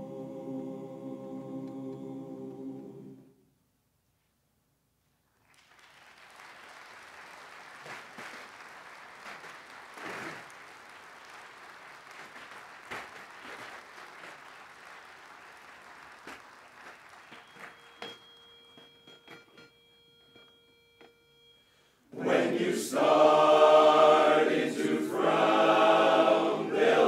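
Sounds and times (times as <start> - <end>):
audience applauding: 5.4 - 18.2.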